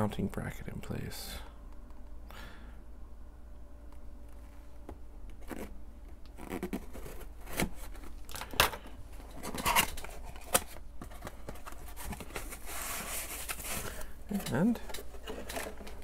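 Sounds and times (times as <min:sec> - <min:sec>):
cardboard flaps rustling: 0:09.2 - 0:16.0.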